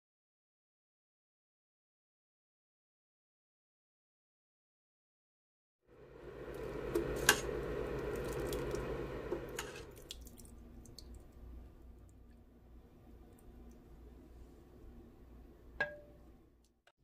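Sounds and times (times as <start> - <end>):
soup pouring into a bowl: 6.0 - 11.5.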